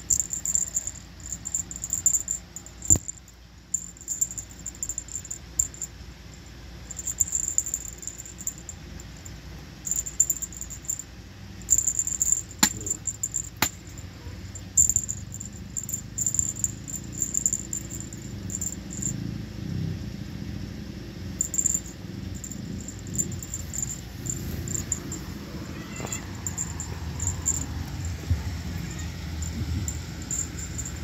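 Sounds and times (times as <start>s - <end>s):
high rattle: 0.0s - 19.2s, 21.4s - 31.0s
rustling and handling noise: 21.4s - 31.0s.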